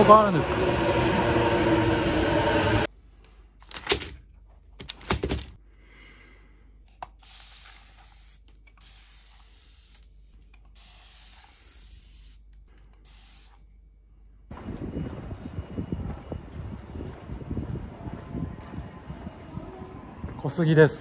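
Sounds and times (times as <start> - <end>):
aerosol spray hissing: 7.2 - 10.1, 10.7 - 13.6.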